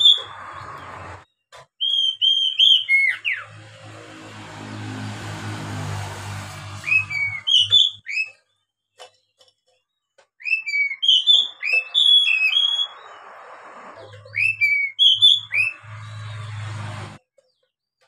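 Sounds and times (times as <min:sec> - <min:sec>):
bird singing whistled notes: 0:00.0 - 0:00.9, 0:01.8 - 0:03.5, 0:06.8 - 0:08.5, 0:10.4 - 0:13.2, 0:14.1 - 0:16.5.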